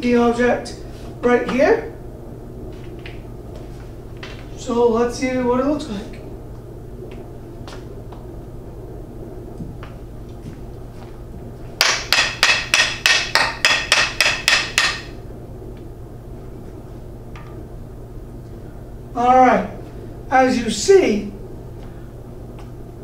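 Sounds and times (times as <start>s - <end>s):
wooden stick striking bowling ball: 11.8s - 15.2s.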